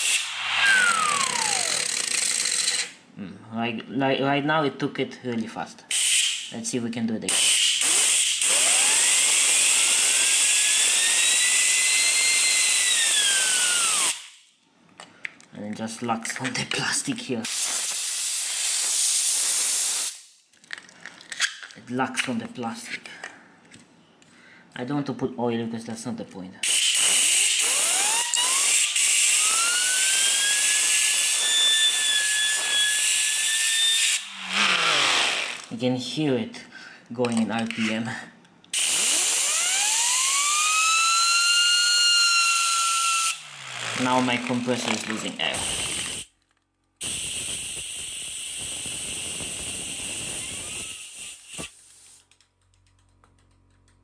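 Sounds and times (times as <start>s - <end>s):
turbine wheel whine: 0.0s - 2.2s, 39.1s - 44.3s, 47.0s - 51.7s
spinning turbine wheel whine: 0.0s - 2.9s, 8.4s - 14.2s, 27.5s - 35.7s, 38.8s - 45.0s, 47.0s - 51.5s
compressed air hissing: 17.5s - 20.3s, 45.5s - 46.3s, 47.0s - 52.2s.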